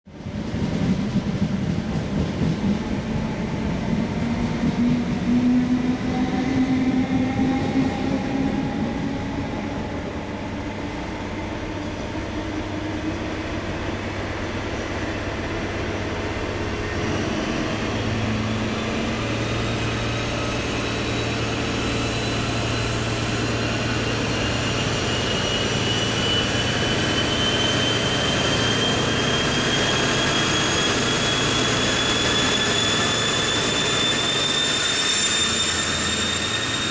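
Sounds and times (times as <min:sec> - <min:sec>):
diesel train engines pulling away: 0:00.2 - 0:36.9
high turbocharger whine: 0:16.7 - 0:36.9.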